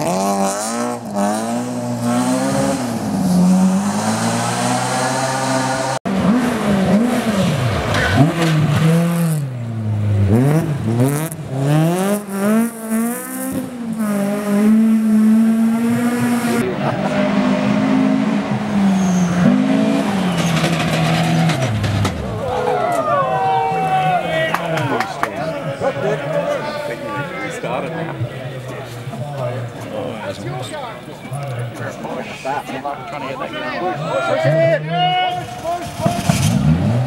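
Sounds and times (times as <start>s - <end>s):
rally car engine revving: 0.0s - 22.6s, 34.4s - 37.0s.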